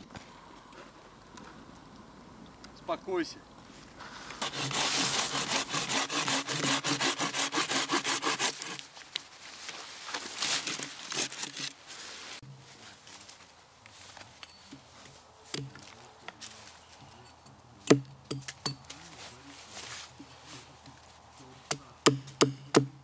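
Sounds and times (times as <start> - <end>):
hand saw cutting branch: 4.3 - 8.9, 10.4 - 11.8.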